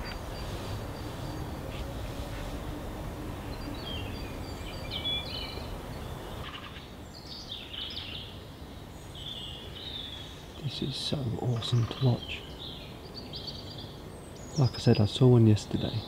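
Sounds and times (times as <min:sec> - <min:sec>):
small birds chirping: 0:00.0 - 0:02.7, 0:03.3 - 0:16.0
low outdoor rumble: 0:00.0 - 0:07.5.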